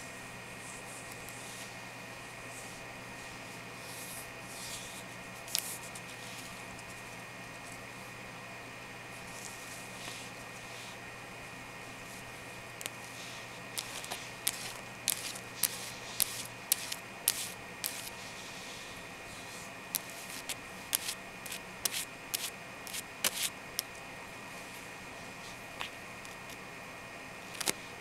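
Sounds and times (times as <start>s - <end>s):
fingernails scratching: 13.8s - 18.2s, 19.9s - 23.5s.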